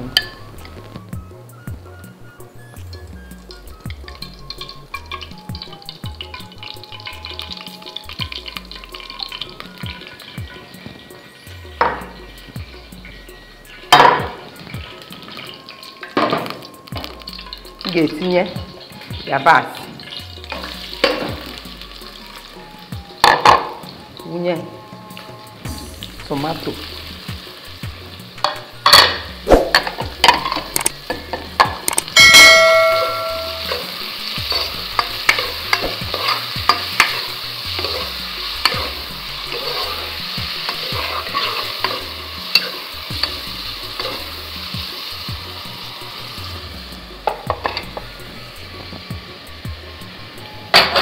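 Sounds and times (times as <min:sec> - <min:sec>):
onions and tomatoes sizzling in oil: 0:00.0 - 0:51.0
spoon stirring and knocking on pot: 0:11.8 - 0:12.2, 0:34.5 - 0:40.0
ringing metallic clang: 0:32.2 - 0:33.8.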